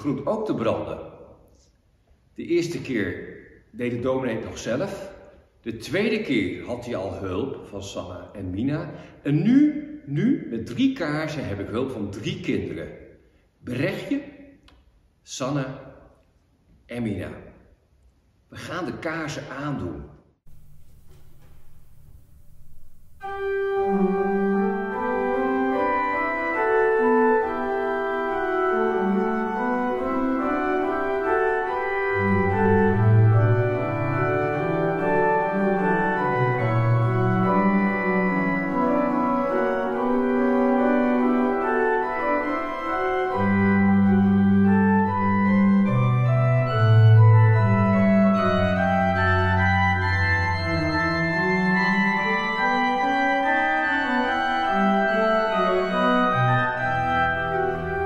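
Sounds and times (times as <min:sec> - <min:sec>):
deep organ bass notes: 0:20.5 - 0:58.0
organ chords: 0:20.5 - 0:58.0.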